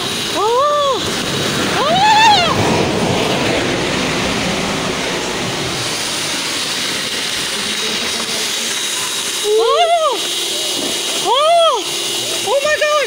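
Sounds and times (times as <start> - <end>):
landslide rushing rumble: 0.0 - 10.4
person yelling: 0.3 - 1.0, 1.8 - 2.6, 9.5 - 10.2, 11.2 - 11.9.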